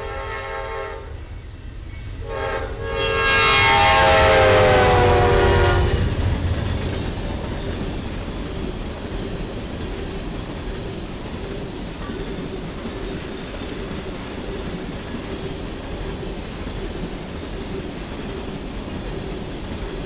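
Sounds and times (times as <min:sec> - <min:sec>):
locomotive horn: 0:00.0 - 0:01.2, 0:02.2 - 0:06.1.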